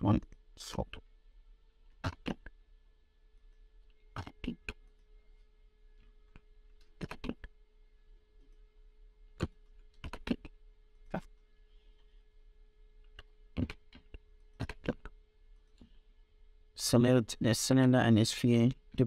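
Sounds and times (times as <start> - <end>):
faint steady hum: 0.0 - 19.0.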